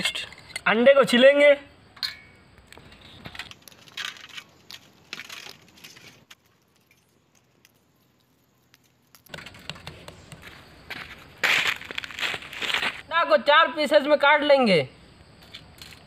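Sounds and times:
eggshells crackling while peeled: 0:03.5 - 0:09.8.

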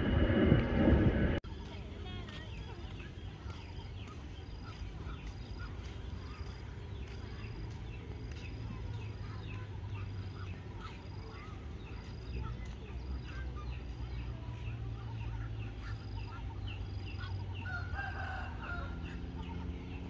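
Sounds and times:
wind rumble on microphone: 0:00.0 - 0:06.2
small birds chirping: 0:01.4 - 0:20.0.

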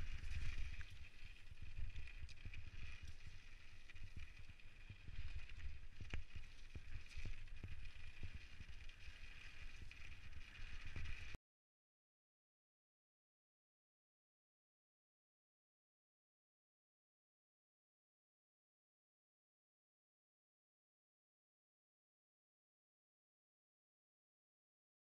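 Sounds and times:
bike clicking and rattling: 0:00.0 - 0:11.4
bike tyres rumbling over gravel: 0:00.0 - 0:11.4.

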